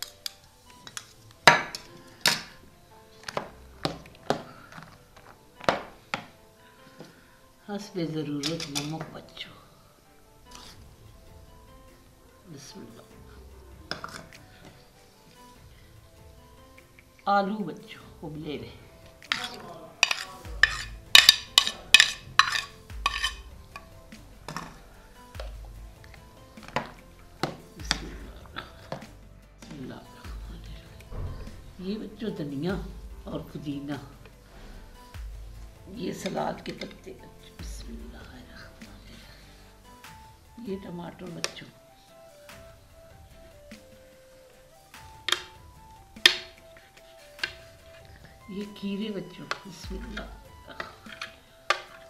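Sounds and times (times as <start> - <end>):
faint music: 0.0 - 52.0
spatula clacking against plate: 19.3 - 23.4.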